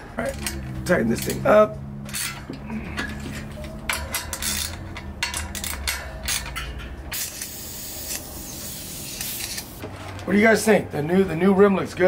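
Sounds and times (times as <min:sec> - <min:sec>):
small metallic clinks and clicks: 0:02.0 - 0:07.0.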